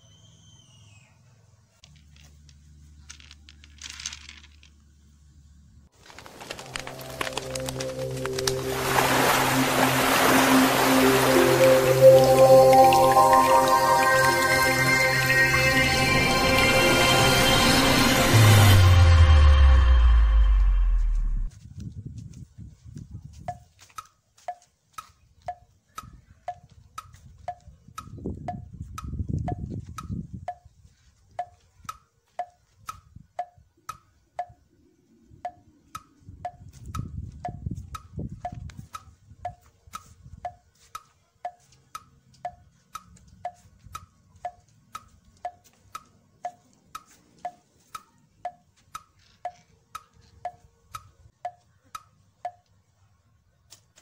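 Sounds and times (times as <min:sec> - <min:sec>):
low rumble: 0:15.6 - 0:21.5
wood block tick-tock: 0:23.5 - 0:30.7, 0:31.4 - 0:34.7, 0:35.4 - 0:52.8.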